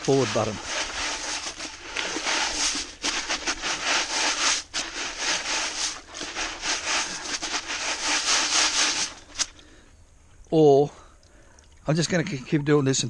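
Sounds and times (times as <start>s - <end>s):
stones scraping on wire mesh: 0.0s - 9.6s.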